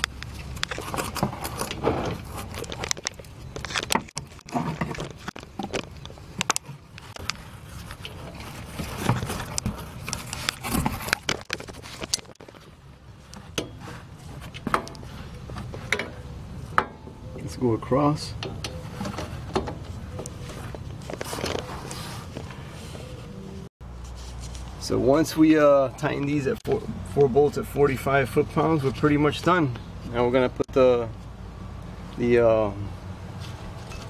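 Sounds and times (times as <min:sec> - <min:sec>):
metal knocks and scrapes: 0:00.0 - 0:12.6.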